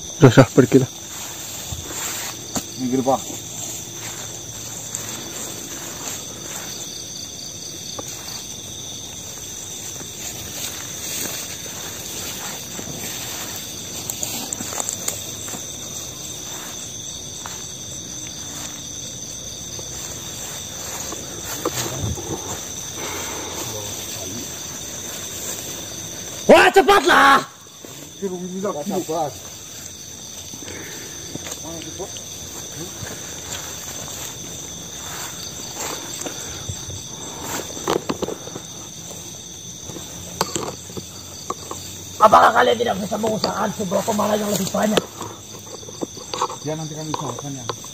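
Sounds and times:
crickets and night insects calling: 0.0 - 47.9.

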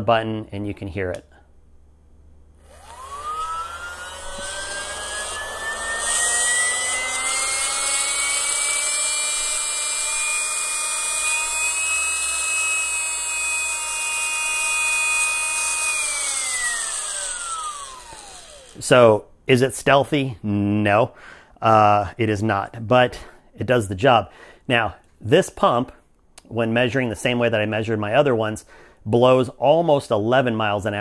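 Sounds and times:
air pump motor whine: 2.6 - 18.8.

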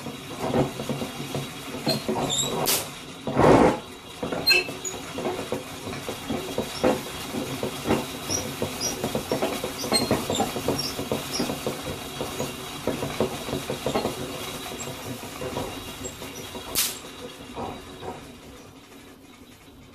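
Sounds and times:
hand-cranked machine clattering: 0.0 - 19.9.

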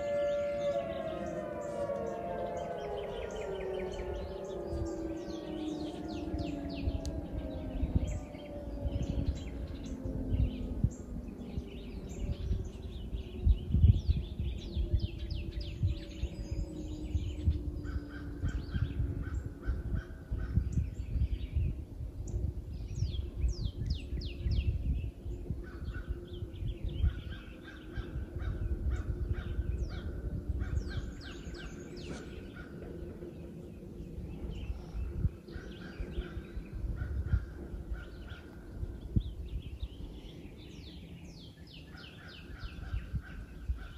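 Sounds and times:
two-tone warning siren winding down: 0.0 - 20.0
birds chirping: 0.0 - 43.9
low gusty rumble: 0.0 - 43.9.

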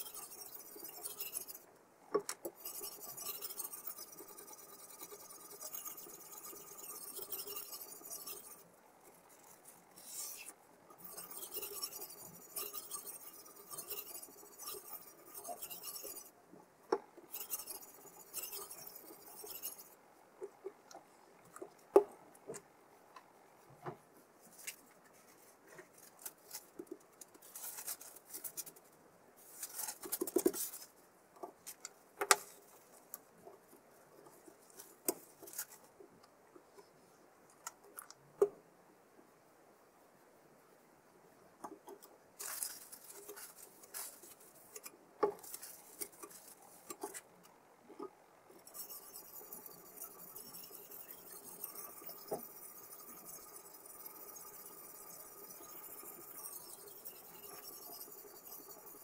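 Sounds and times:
sharpening stone hissing along knife: 2.6 - 8.6, 10.0 - 16.3, 17.3 - 20.0, 48.6 - 59.0.

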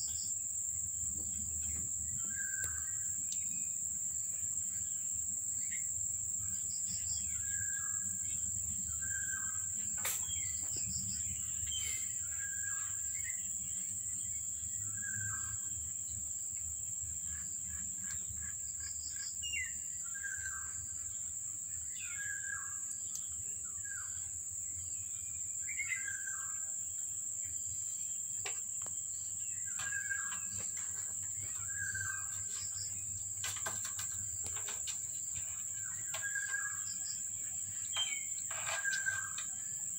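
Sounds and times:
bird chirps: 1.3 - 15.8, 28.8 - 39.9.

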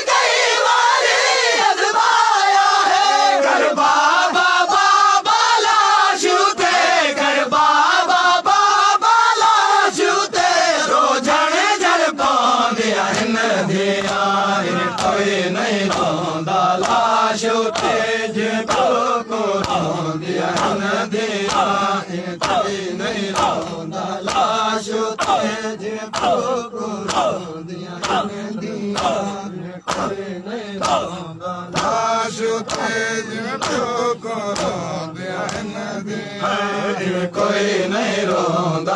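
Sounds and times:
men chanting: 0.0 - 38.9
rhythmic sharp beats: 13.1 - 35.8.

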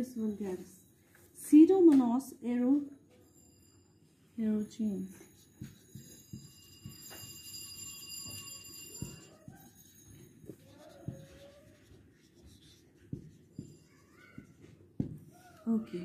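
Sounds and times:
marker scratching on whiteboard: 8.2 - 15.3
marker squeaks: 10.5 - 14.6.

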